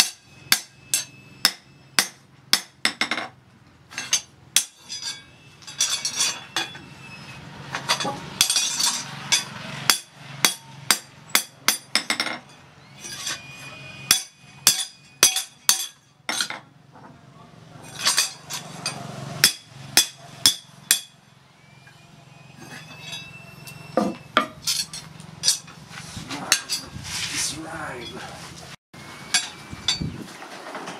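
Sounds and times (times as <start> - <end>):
hammer striking steel on anvil: 0.0 - 3.2, 7.9 - 12.5, 14.1 - 16.6, 18.0 - 21.2.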